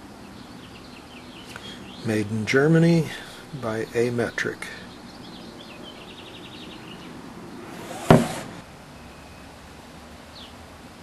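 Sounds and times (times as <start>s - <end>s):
sharp knock: 7.9s - 8.6s.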